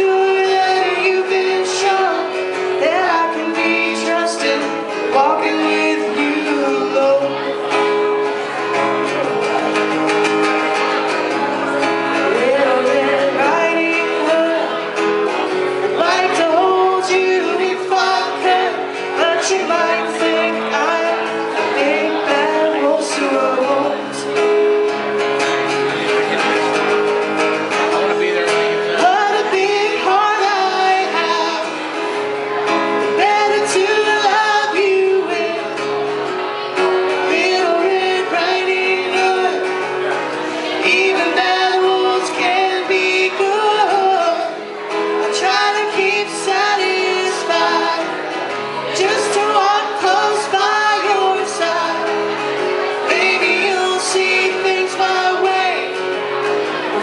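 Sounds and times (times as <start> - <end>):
man and woman singing: 0.0 - 7.6, 12.0 - 15.0, 15.8 - 24.4, 28.8 - 32.0, 32.8 - 35.9, 36.9 - 56.1
acoustic guitar strumming: 0.0 - 57.0.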